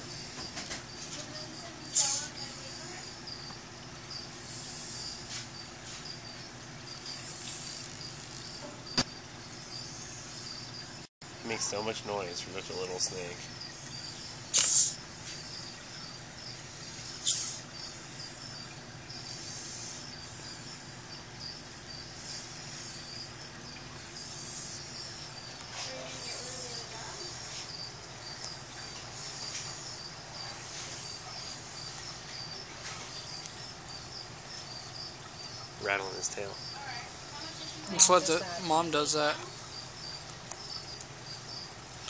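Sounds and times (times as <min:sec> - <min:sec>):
steady high chirping: 0:00.0 - 0:41.8
small snake hissing: 0:01.6 - 0:03.5, 0:04.1 - 0:08.7, 0:09.5 - 0:11.1, 0:12.2 - 0:38.8.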